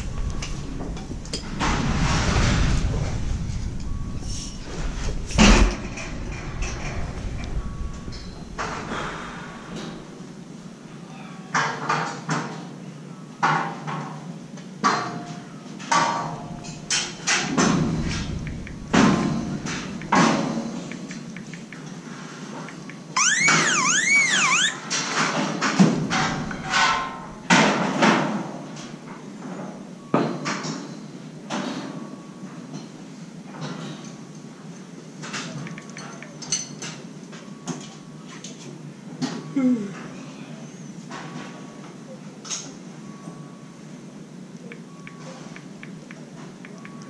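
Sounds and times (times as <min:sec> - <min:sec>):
metal scaffolding clanking: 0:25.9 - 0:27.6.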